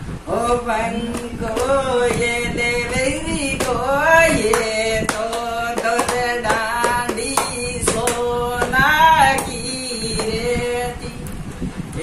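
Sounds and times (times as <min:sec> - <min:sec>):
woman singing: 0:00.2 - 0:11.3
hand claps: 0:01.1 - 0:02.7, 0:03.4 - 0:10.4.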